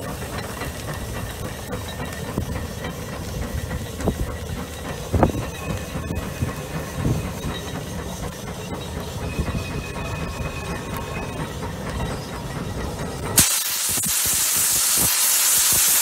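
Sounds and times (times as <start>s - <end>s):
steam hiss: 13.3s - 16.0s.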